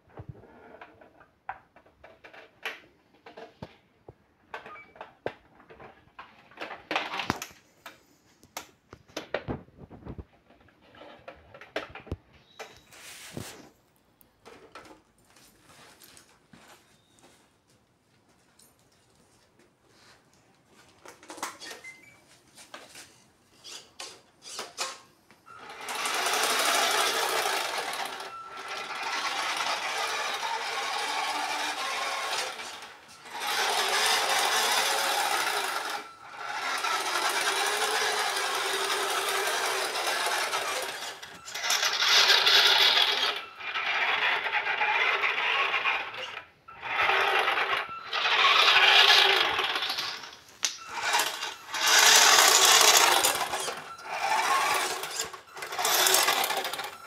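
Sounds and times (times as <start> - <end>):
toy truck motor whining: 23.6 - 57.0.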